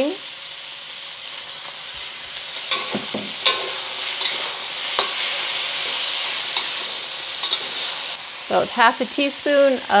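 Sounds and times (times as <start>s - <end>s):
food sizzling in a wok: 0.0s - 10.0s
metal spatula scraping wok: 1.7s - 8.2s.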